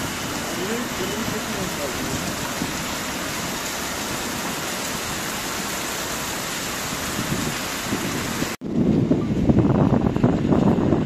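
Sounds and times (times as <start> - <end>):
heavy rain hissing: 0.0 - 8.6.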